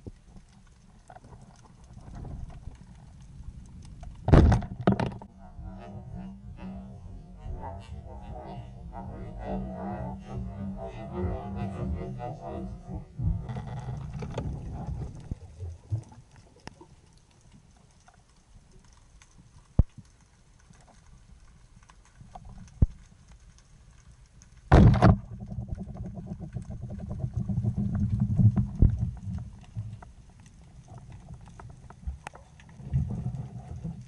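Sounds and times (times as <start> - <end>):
muffled low rumbling: 3.3 - 16.3.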